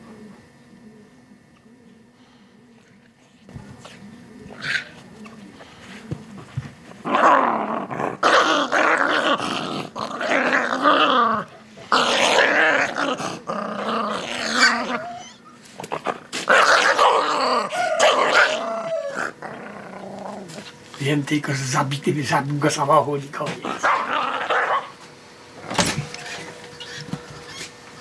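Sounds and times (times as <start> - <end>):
dog growling and yelping: 7.0 - 20.8, 23.6 - 25.0.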